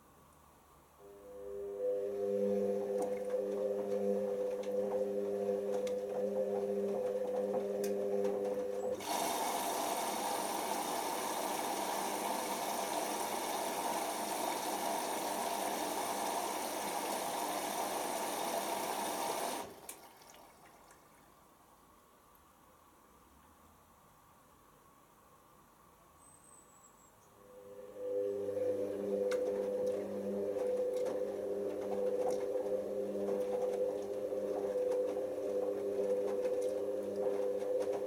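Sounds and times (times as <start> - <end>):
washing machine drum motor humming: 1.7 - 21.3, 27.9 - 38.0
water rushing through inlet valve: 8.9 - 21.2.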